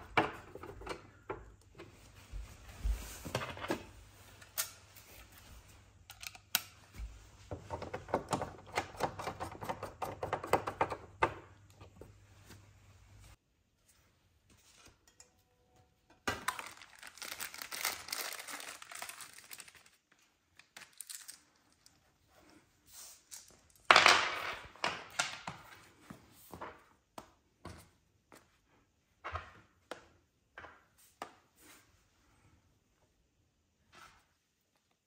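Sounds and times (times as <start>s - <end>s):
plastic bags and cardboard crinkling: 16.2s - 23.9s.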